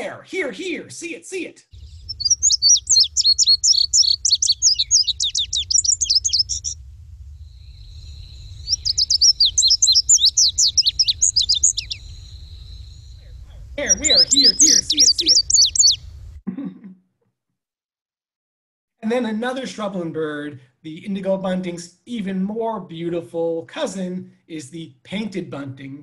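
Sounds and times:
bird song with paired notes: 1.8 - 6.8, 7.7 - 13.2, 13.8 - 16.0.

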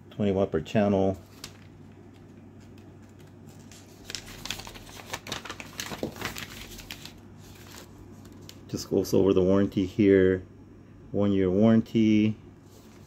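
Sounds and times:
paper rustling and crinkling: 1.1 - 8.8, 12.6 - 13.0.

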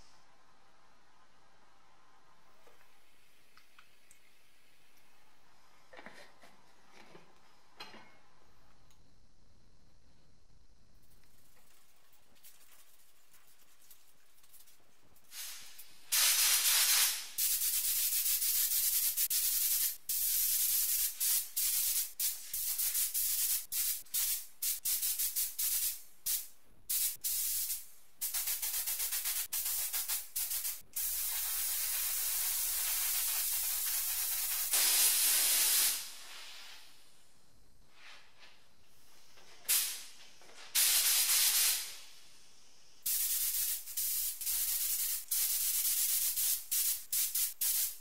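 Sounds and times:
paint spray gun hissing: 15.2 - 36.8, 40.8 - 42.1, 43.0 - 48.0.

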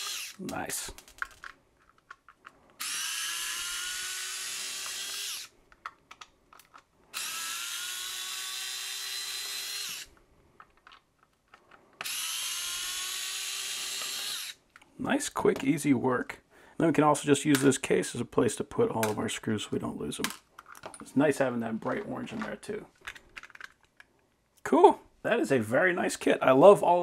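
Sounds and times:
electric screwdriver motor whine: 0.0 - 0.4, 2.8 - 5.5, 7.1 - 10.1, 12.0 - 14.6.

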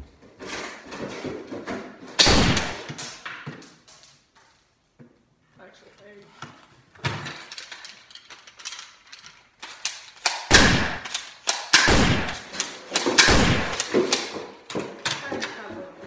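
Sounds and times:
echoing gunshots: 2.2 - 2.9, 10.4 - 14.3
gun handling clicks and knocks: 6.4 - 15.7.

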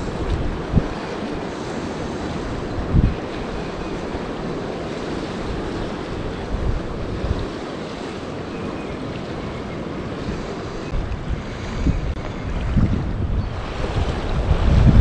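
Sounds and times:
creek rushing: 0.0 - 15.0
wind buffeting microphone: 0.0 - 15.0.

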